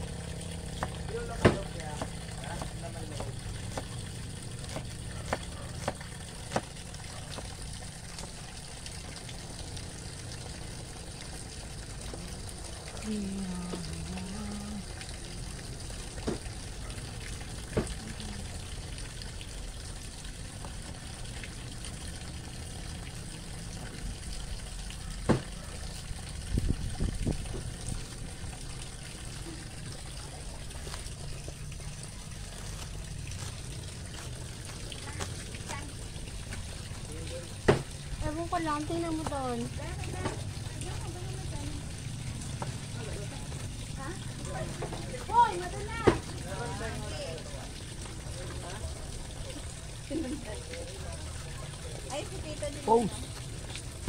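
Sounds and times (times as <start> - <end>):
cleaver chopping on wooden board: 0.8 - 4.0, 4.6 - 7.5, 25.3 - 25.5, 37.7 - 37.9.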